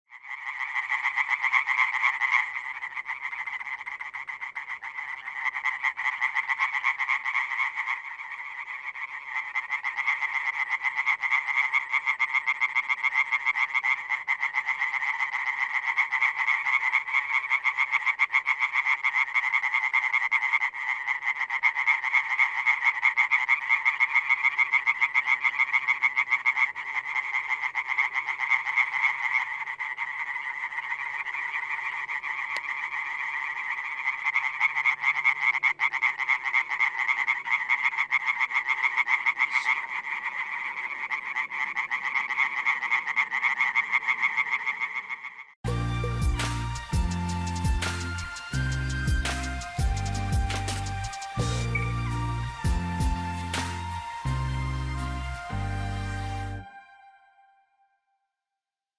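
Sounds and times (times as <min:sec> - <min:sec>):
tree frog chorus: 0:00.1 - 0:45.6, 0:46.7 - 0:55.5
tree frog calling: 0:00.1 - 0:46.0, 0:46.7 - 0:56.0.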